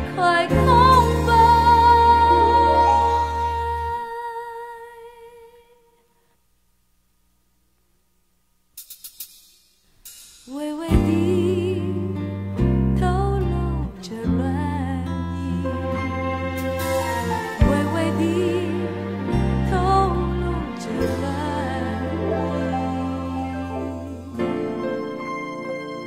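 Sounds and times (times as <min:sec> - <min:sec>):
band with strong bass: 0:00.0 - 0:03.8, 0:15.7 - 0:25.0
woman singing pop ballad: 0:00.0 - 0:05.8, 0:10.5 - 0:16.3, 0:17.5 - 0:24.6.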